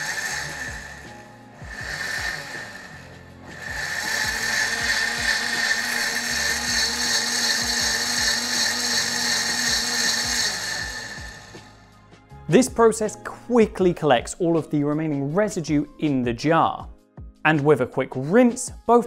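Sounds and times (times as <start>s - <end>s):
blender whining: 0.0s - 11.9s.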